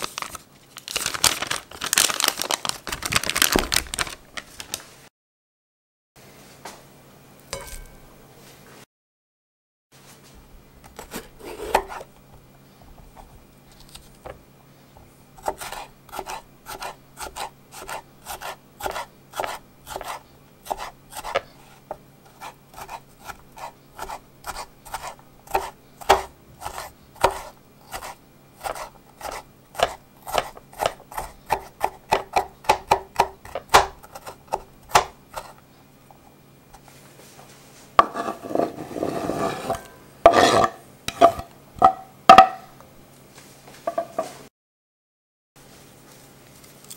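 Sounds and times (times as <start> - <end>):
knife scraping across board: 10.8 - 12.2, 15.4 - 32.5, 33.4 - 35.6, 38.0 - 42.0
knife chopping on wooden board: 10.9 - 12.1, 15.4 - 35.6.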